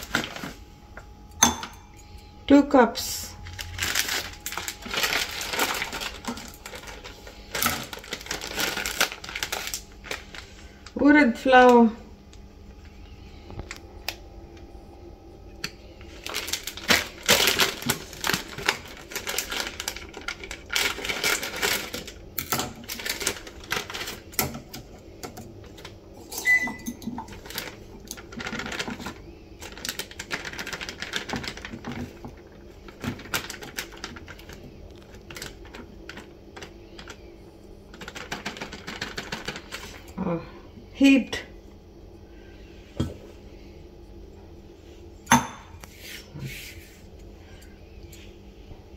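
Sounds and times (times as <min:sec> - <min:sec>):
plastic packet crinkling: 0:00.0 - 0:00.6, 0:03.3 - 0:11.0, 0:16.1 - 0:24.8, 0:27.0 - 0:40.1
packet tearing open: 0:03.6 - 0:10.4.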